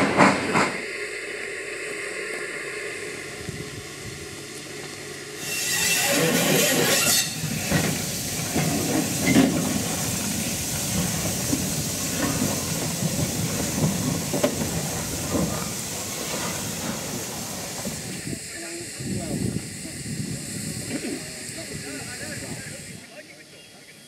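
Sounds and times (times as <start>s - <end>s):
low rumble of locomotive: 0.0s - 24.0s
steam hissing: 0.0s - 24.0s
wheels clanking and clicking: 5.8s - 17.1s.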